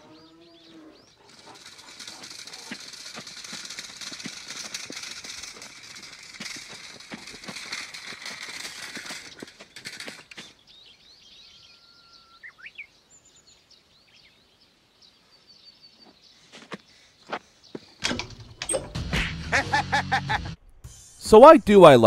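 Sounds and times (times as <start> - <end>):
small birds chirping: 0.0 - 18.0
cart rattling over ground: 0.6 - 11.1, 18.0 - 19.2.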